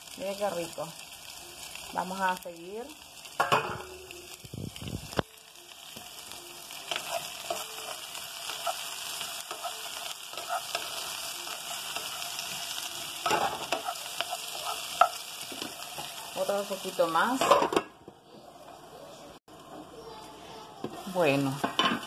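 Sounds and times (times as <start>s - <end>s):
zucchini sizzling in oil: 0.0s - 17.4s, 19.0s - 22.0s
spatula scraping and tapping pan: 13.2s - 16.2s.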